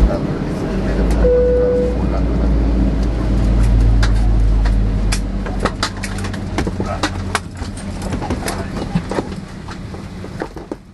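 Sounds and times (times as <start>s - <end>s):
low cabin hum: 0.0s - 10.9s
sharp clicks and clacks: 3.0s - 10.9s.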